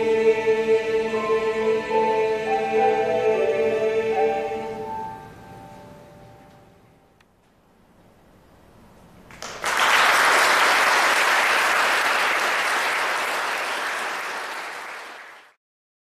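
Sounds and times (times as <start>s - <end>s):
audience applauding: 9.3s - 15.6s.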